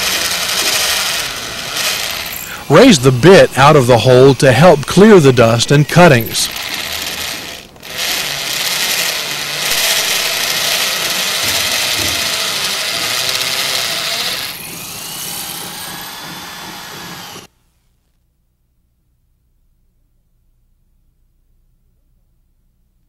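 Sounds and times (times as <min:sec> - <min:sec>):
rotary hammer drill into concrete: 0:00.0 - 0:17.5.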